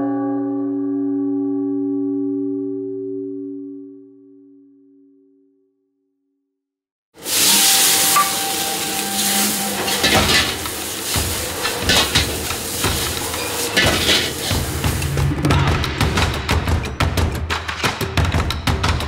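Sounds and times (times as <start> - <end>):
metal ladle scraping wok: 7.2 - 15.2
food sizzling in a wok: 7.2 - 15.3.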